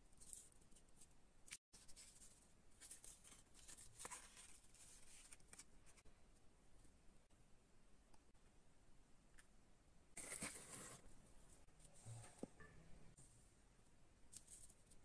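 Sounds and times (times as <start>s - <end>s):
paper and cardboard rustling: 1.8s - 6.0s, 10.2s - 11.1s.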